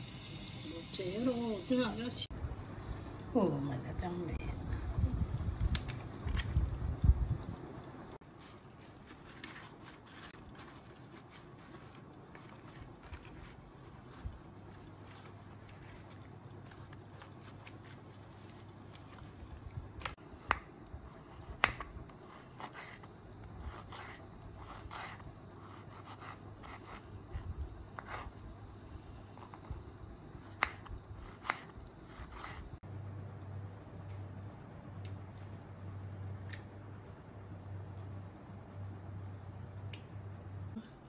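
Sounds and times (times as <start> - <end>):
paper towel rubbing: 8.3 - 19.4.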